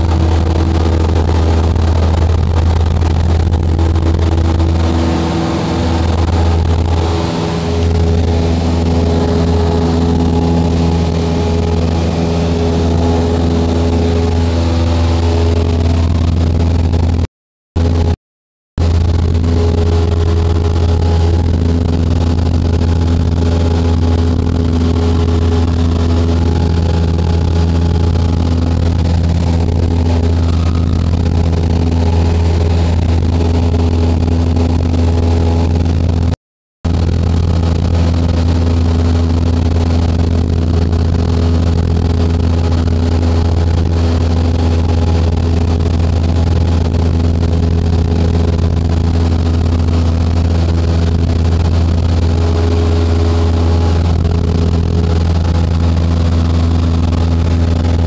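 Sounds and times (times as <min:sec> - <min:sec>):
light aircraft engine droning: 0:00.0 - 0:18.2, 0:18.8 - 0:58.0.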